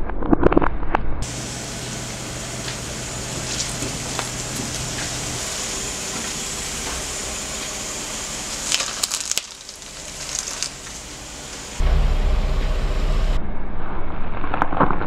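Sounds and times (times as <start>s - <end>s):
car tyre crushing vegetables: 6.2s - 11.8s
sharp crunches of corn: 8.5s - 11.1s.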